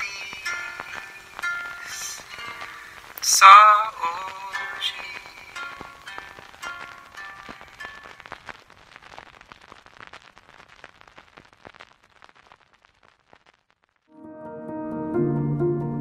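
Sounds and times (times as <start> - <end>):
music: 0.0 - 8.2, 14.1 - 16.0
record crackle clicks and pops: 0.0 - 14.2.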